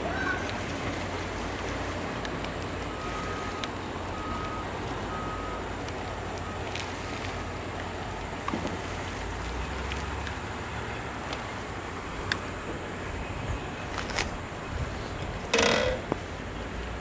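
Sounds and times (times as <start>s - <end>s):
outdoor rumble and hiss: 0.0s - 17.0s
faint clicks: 3.5s - 3.8s.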